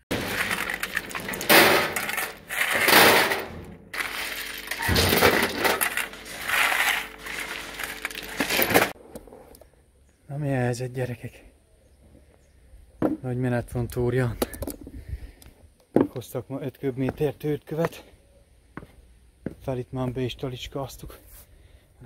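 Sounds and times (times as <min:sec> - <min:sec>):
shovels digging into rubble: 0:00.1 - 0:09.0
stones clattering into wheelbarrow: 0:00.1 - 0:09.0.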